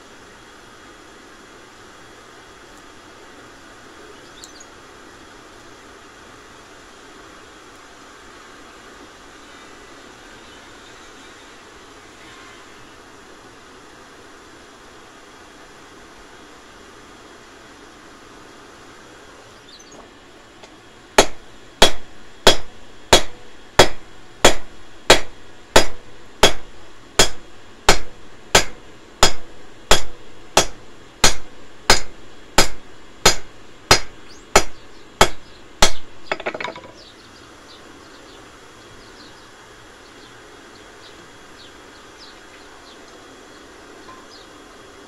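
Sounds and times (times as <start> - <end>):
hammer striking steel on anvil: 21.2 - 37.0
metal clatter: 36.3 - 37.0.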